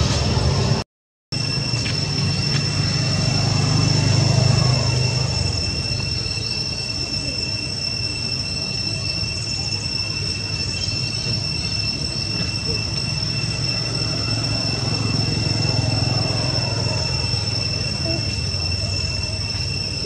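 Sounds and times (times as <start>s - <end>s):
high-pitched whine: 0.0s - 20.0s.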